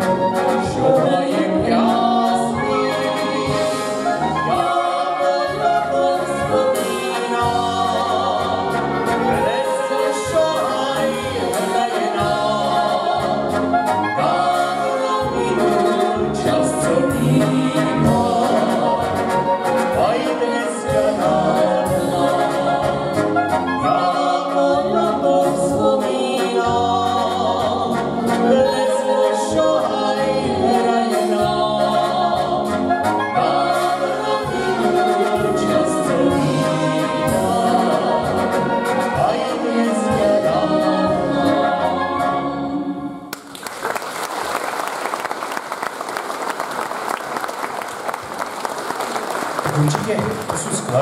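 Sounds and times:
brass band playing: 0.0 - 43.3
people singing: 0.0 - 43.3
audience applause: 43.3 - 51.0.

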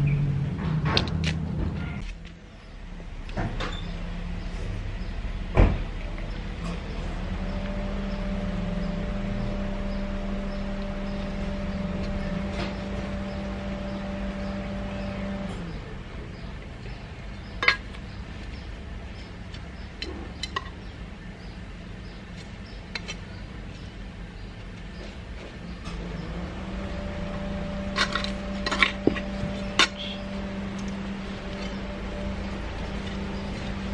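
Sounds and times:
vehicle engine humming: 0.0 - 33.9
trowel clinking in potting mix: 28.0 - 30.2.

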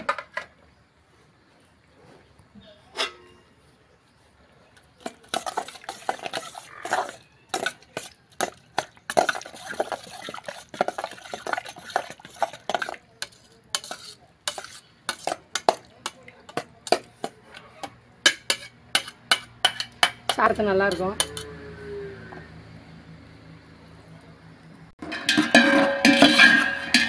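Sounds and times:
wet squishing stir by hand: 4.6 - 17.9.

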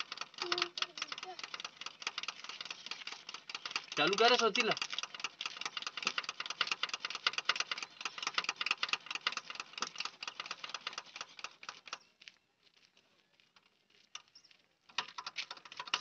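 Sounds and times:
fuel dripping into bucket: 0.0 - 12.0.

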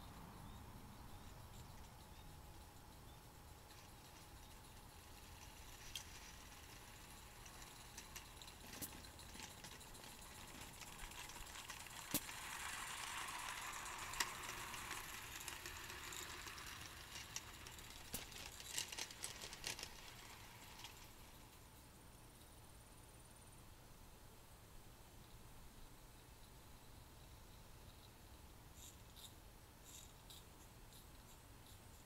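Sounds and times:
soft hiss: 0.0 - 32.0
toy train wheels clicking and rattling: 1.2 - 21.7, 28.8 - 32.0.

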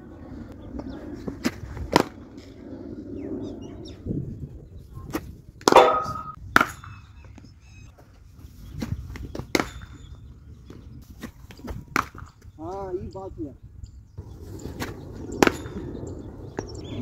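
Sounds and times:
cricket ball striking bat: 5.6 - 6.9, 11.9 - 12.3, 14.8 - 15.9.

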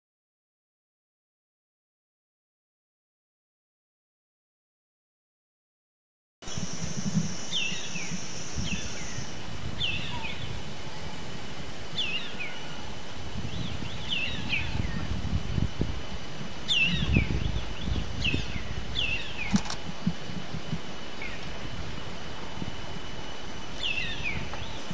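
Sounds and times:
bird whistled calls: 7.4 - 11.2, 16.7 - 19.7.

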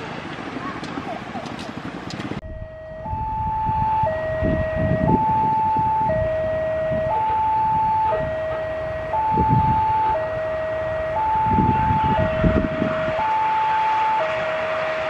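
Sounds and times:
level crossing two-tone alarm: 2.4 - 15.0.

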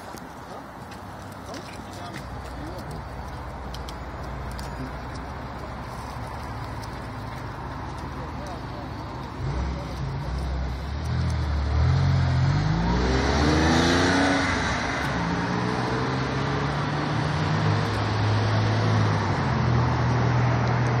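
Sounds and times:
car engine accelerating: 7.6 - 21.0.

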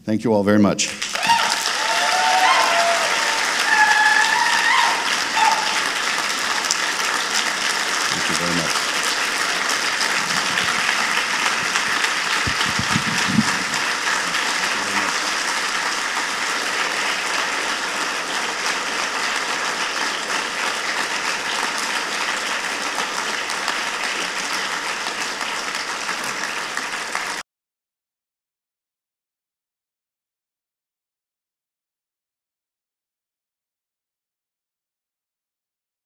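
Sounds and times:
audience applauding: 0.9 - 27.4
low thumps: 12.4 - 13.8.

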